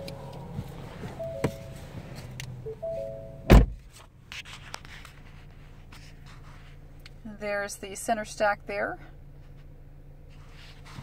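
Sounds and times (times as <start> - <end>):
car door shutting: 0.0 - 3.9
low steady hum: 0.0 - 11.0
car warning chime: 1.0 - 1.9, 2.6 - 3.5.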